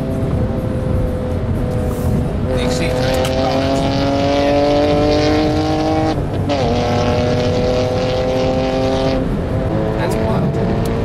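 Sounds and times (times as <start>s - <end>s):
car engine accelerating: 0.0s - 11.0s
road and tyre noise: 0.0s - 11.0s.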